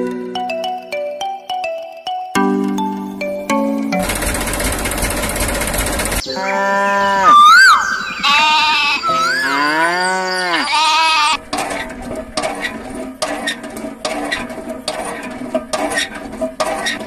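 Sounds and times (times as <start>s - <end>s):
cattle mooing: 6.3s - 11.4s.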